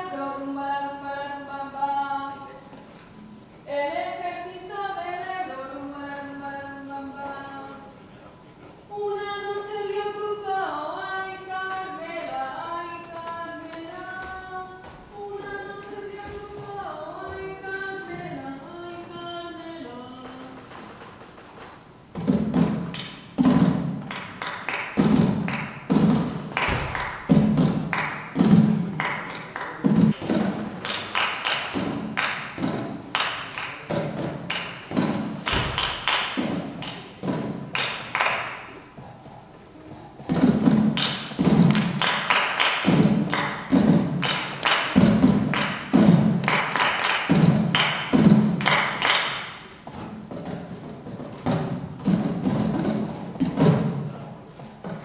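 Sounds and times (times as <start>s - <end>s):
rhythmic percussive thumps: 22.0s - 38.3s, 40.3s - 54.1s
heavy percussive thuds: 25.0s - 29.1s, 33.9s - 37.8s.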